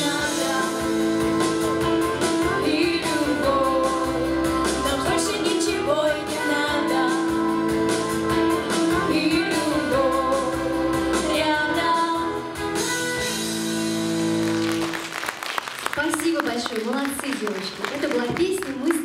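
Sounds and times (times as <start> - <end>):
girls singing pop duet: 0.0 - 12.8
instrumental accompaniment: 0.0 - 15.6.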